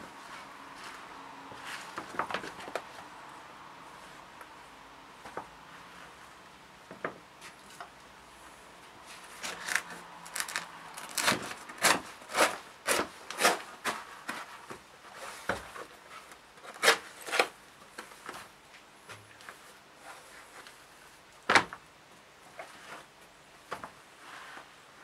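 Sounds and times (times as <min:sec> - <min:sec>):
dried hide crackling and scraping: 0:09.0 - 0:17.6.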